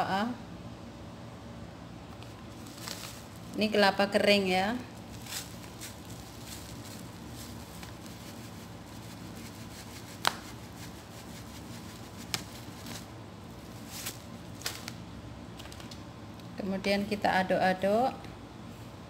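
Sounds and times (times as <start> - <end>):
plastic bag rustling: 2.2 - 15.0.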